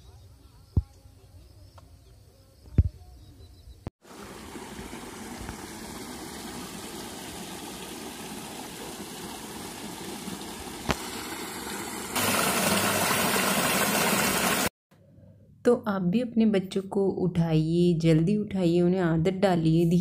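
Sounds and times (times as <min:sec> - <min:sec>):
water rushing over rocks: 0:04.0 - 0:14.7.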